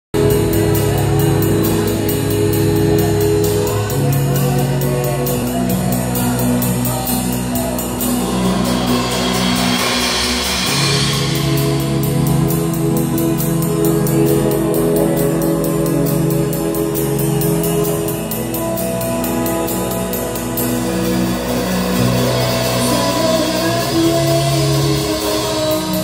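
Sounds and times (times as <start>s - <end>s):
live band music: 0.2s - 26.0s
cymbal strokes: 7.1s - 26.0s.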